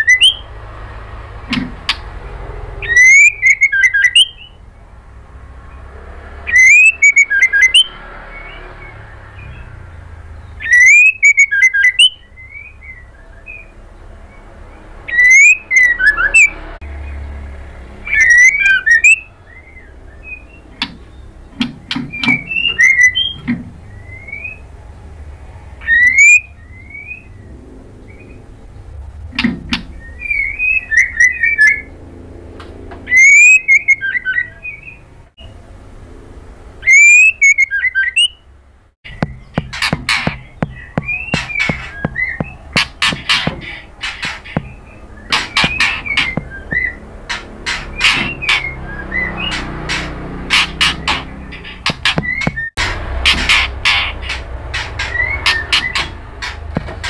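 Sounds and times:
bird singing whistled phrases: 0:00.0 - 0:00.5, 0:02.8 - 0:04.6, 0:06.5 - 0:08.6, 0:10.6 - 0:13.8, 0:15.1 - 0:16.6, 0:18.1 - 0:21.2, 0:22.1 - 0:24.7, 0:25.8 - 0:27.3, 0:30.0 - 0:31.9, 0:33.1 - 0:35.0, 0:36.8 - 0:38.4.

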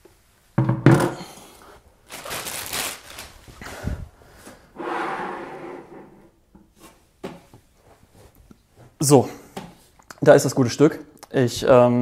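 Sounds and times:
plastic wrapping rustling: 0:01.6 - 0:04.0.

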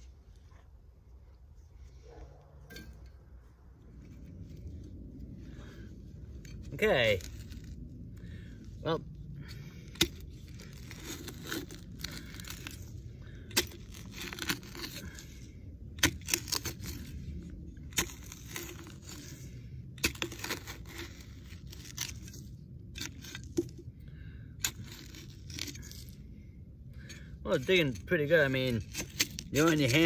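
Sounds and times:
low rumble: 0:00.0 - 0:28.1
scrape and crunch of dirt: 0:00.0 - 0:30.0
shovel blade striking soil: 0:09.8 - 0:12.9, 0:13.5 - 0:17.2, 0:17.8 - 0:23.9, 0:24.6 - 0:26.2, 0:27.1 - 0:30.0.

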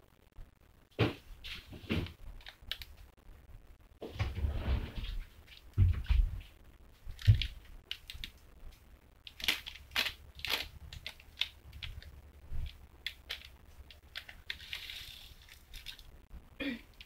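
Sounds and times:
plastic wrapper crinkling: 0:02.2 - 0:03.1, 0:07.0 - 0:16.2.

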